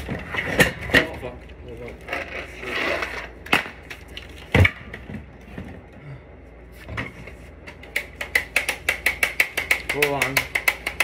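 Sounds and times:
rough scraping: 1.8s - 3.4s.

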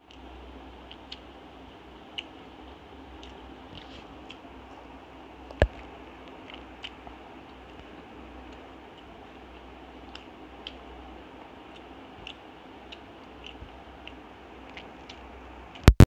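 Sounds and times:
person chewing wetly: 0.0s - 15.8s
low steady hum: 0.0s - 16.0s.

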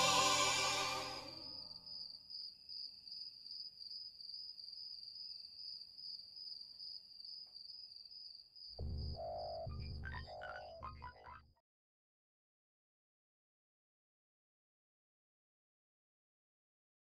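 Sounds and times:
insect trill: 0.0s - 11.2s.

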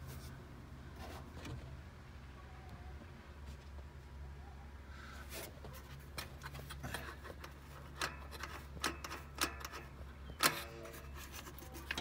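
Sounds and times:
hands rubbing wiring and hoses: 5.3s - 12.0s.

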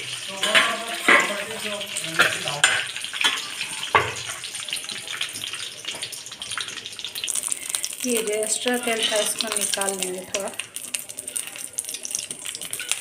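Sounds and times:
hot oil sizzling in a pan: 0.0s - 13.0s
metal spatula clinking on pan: 0.4s - 1.4s, 2.2s - 4.1s, 11.2s - 13.0s.

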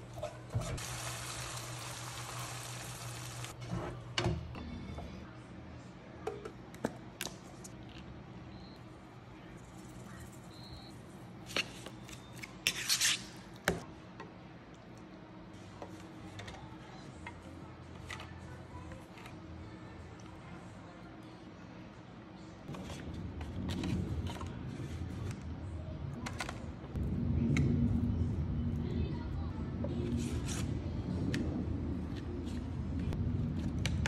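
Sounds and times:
meat sizzling in a frying pan: 0.8s - 3.5s
low steady hum: 13.8s - 34.0s.

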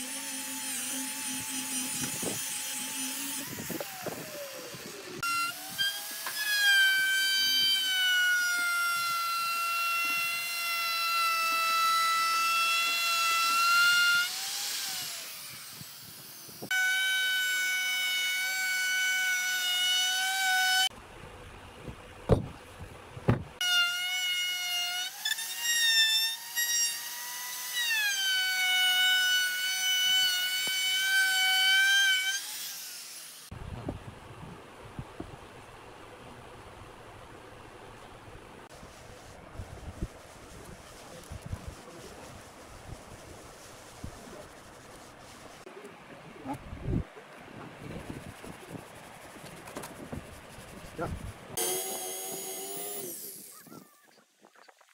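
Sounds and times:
router whining: 0.0s - 20.9s, 51.6s - 53.9s.

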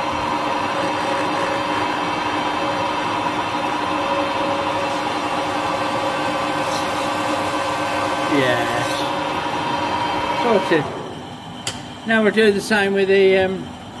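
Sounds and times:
lathe whining: 0.0s - 14.0s
tool cutting steel: 4.8s - 9.2s.

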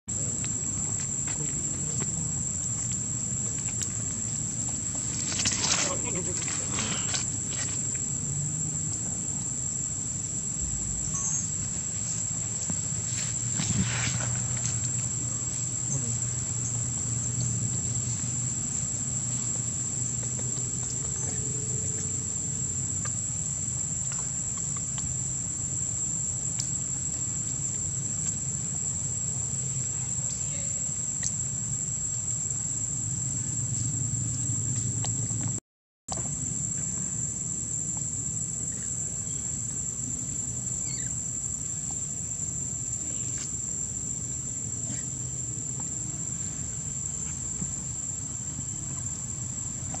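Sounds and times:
high-pitched insect drone: 0.2s - 28.5s, 36.1s - 43.8s.

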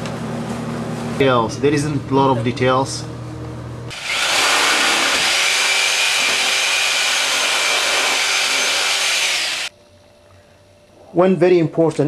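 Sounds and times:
power tool running: 3.9s - 9.7s.

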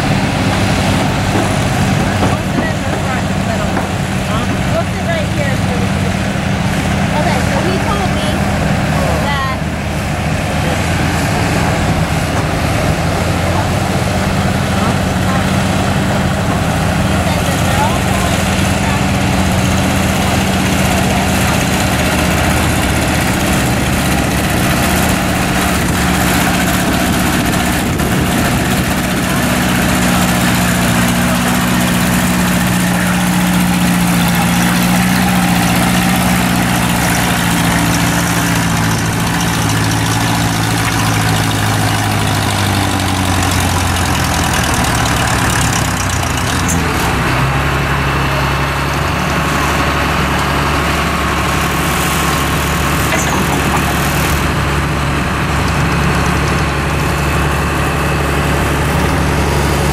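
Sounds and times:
tractor engine running under load: 0.0s - 59.9s.

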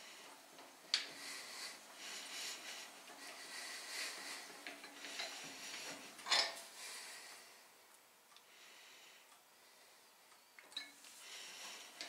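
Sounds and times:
metal clinks and scrapes: 6.2s - 6.6s.

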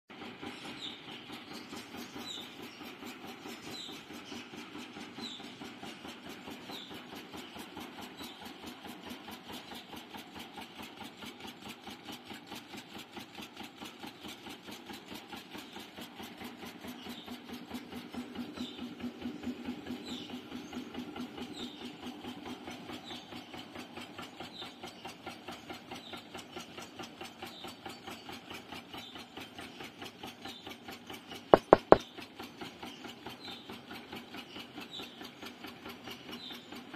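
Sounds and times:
sharp loud knock: 31.6s - 32.0s.

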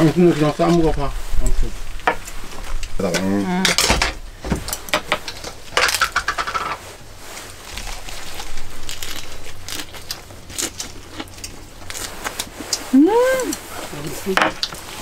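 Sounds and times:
crisp crunching of eating: 4.8s - 15.0s.

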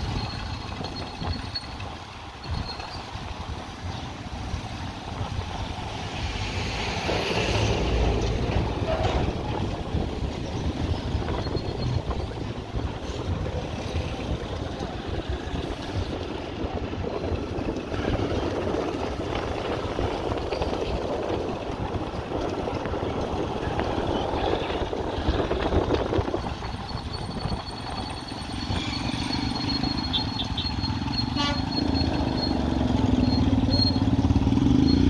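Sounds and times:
wind rushing on microphone: 0.0s - 30.2s
motorcycle engine: 0.0s - 35.0s
road noise: 0.0s - 35.0s.

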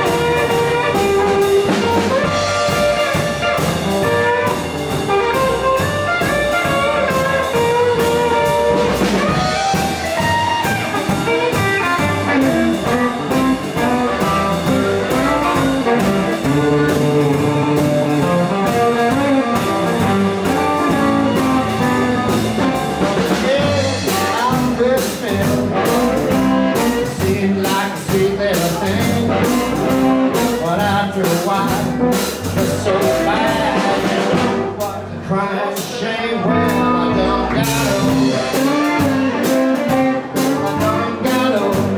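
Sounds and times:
amplified harmonica: 0.0s - 24.6s
drums: 0.0s - 41.9s
electric guitar: 0.0s - 41.9s
upright double bass: 0.0s - 41.9s.

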